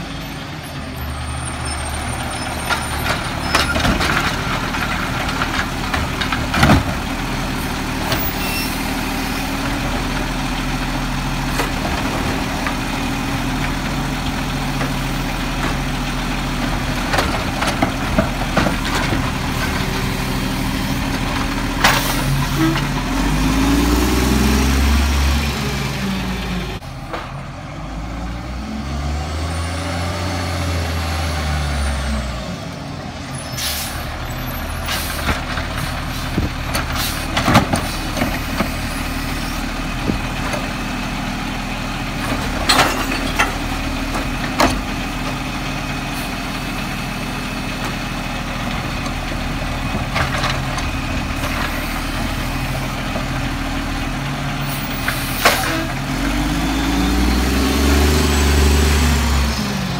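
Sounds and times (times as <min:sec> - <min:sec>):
diesel engine idling and revving: 0:00.0 - 0:59.9
air brake hissing: 0:33.5 - 0:34.0.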